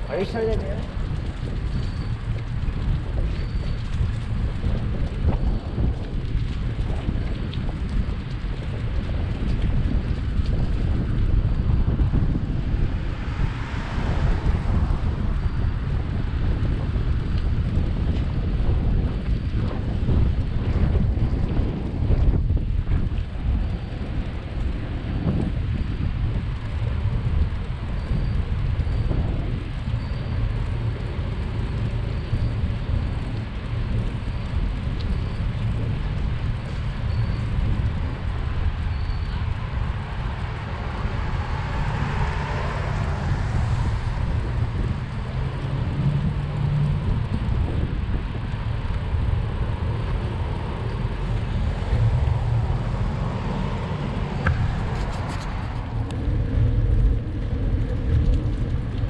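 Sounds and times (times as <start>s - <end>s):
moving bicycle noise: 0.0s - 59.0s
wind rumble on microphone: 0.0s - 59.0s
car traffic: 11.8s - 17.7s, 37.5s - 58.4s
car passing: 11.9s - 17.1s, 38.7s - 47.4s, 49.1s - 58.4s.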